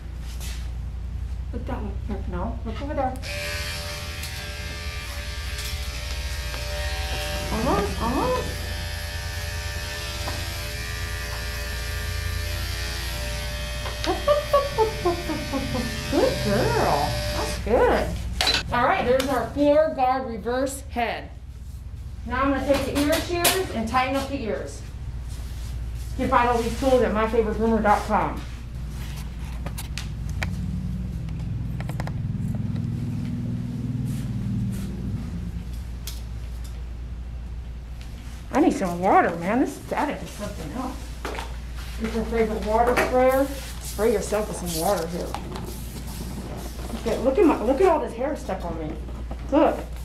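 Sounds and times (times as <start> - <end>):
steady low buzz: 0.0 - 50.0
electric clipper buzzing: 3.2 - 17.8
low hum: 24.5 - 38.3.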